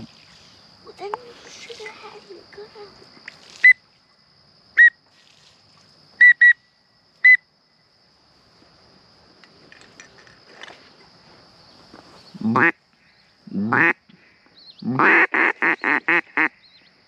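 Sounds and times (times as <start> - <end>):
duck whistle call peeps: 6.2 - 6.6.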